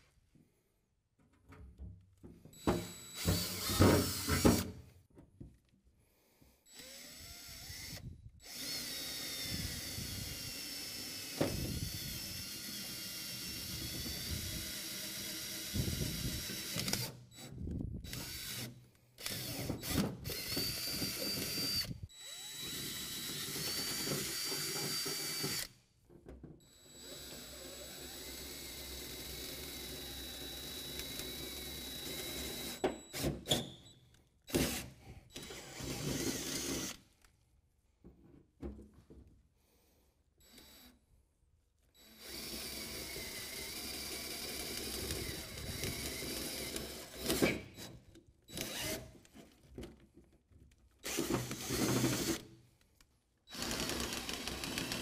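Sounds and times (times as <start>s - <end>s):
drill boring through sheet metal: 2.6s - 4.7s, 6.7s - 17.5s, 18.1s - 25.7s, 26.7s - 33.9s, 34.5s - 37.0s, 42.0s - 49.1s, 51.0s - 52.4s, 53.5s - 55.0s.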